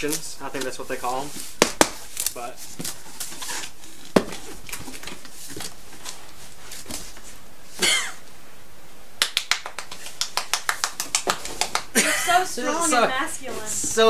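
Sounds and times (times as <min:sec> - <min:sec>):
cardboard boxes knocking and clicking: 0:02.8 - 0:05.7.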